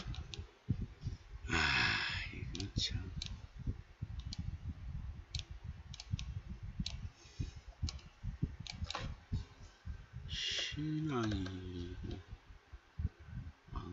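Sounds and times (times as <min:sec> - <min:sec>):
keyboard and mouse clicks: 0:00.0 - 0:00.5, 0:02.5 - 0:03.4, 0:04.2 - 0:04.5, 0:05.3 - 0:07.0, 0:07.8 - 0:09.2, 0:11.2 - 0:12.2.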